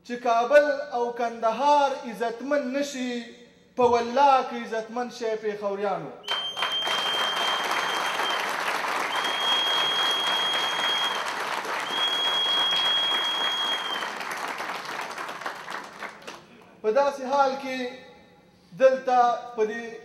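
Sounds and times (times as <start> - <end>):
high steady whistle: 6.2 - 14.2
audience applauding: 6.3 - 16.6.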